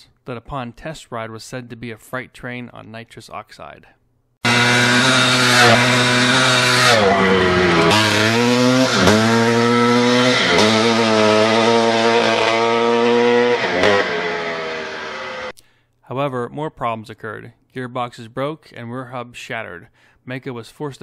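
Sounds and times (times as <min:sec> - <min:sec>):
dirt bike engine revving: 0:04.4 - 0:15.5.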